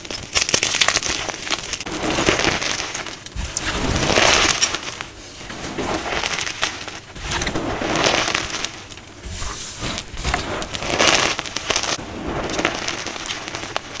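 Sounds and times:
chalk crunching in hands: 0.0 - 14.0.

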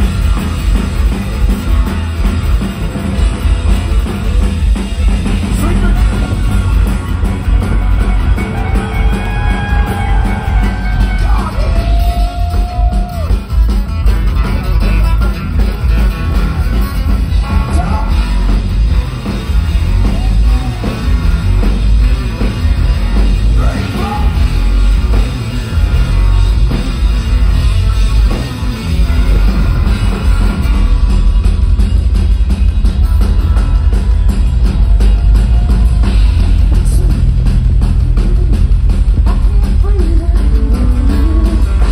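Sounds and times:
live rock band with banjo: 0.0 - 41.9.

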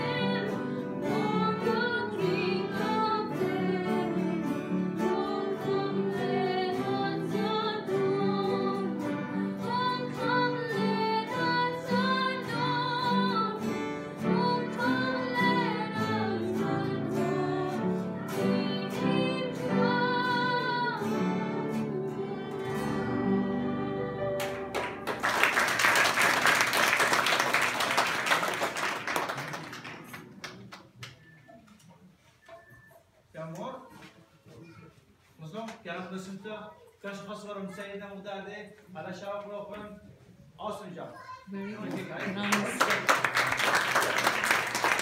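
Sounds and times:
women singing a hymn: 0.0 - 24.8
loud applause: 24.4 - 31.2, 41.9 - 45.0.

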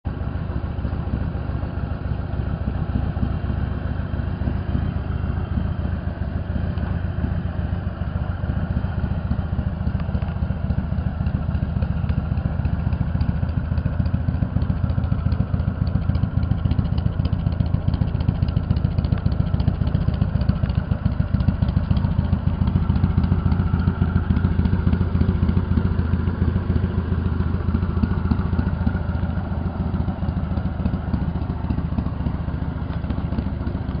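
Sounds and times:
motorcycle engine idling: 0.0 - 34.0.

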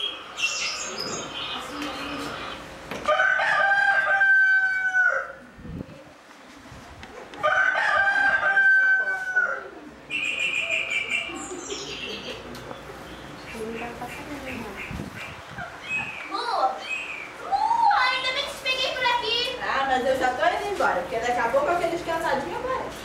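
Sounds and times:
small birds chirping: 0.0 - 2.8, 10.1 - 17.4
rooster crowing: 3.0 - 5.5, 7.4 - 9.8.

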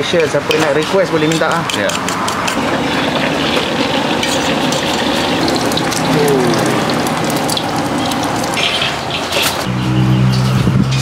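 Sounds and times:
food sizzling in frying: 2.5 - 9.7.

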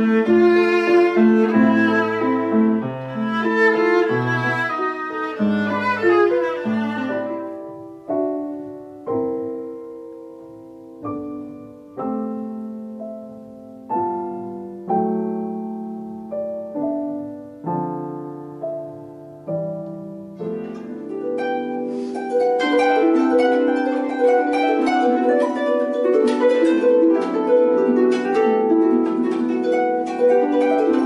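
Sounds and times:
violin: 0.0 - 9.1
piano chords: 0.0 - 31.0.

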